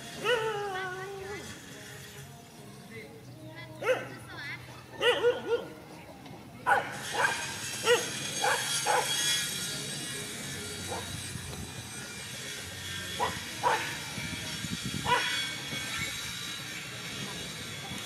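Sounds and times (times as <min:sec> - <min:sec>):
dog barking: 0:03.8 - 0:04.2, 0:05.0 - 0:05.8, 0:06.7 - 0:09.1, 0:13.2 - 0:13.9, 0:15.1 - 0:15.4.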